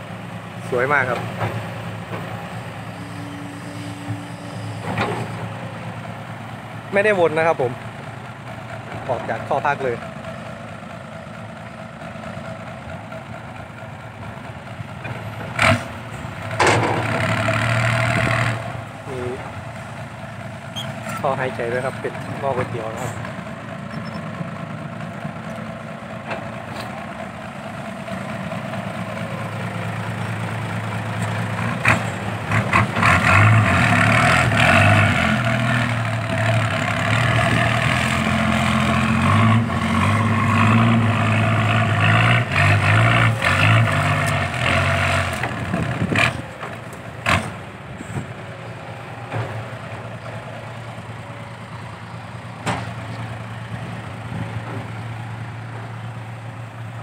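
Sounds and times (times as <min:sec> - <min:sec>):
diesel truck engine revving: 0:00.0 - 0:57.0.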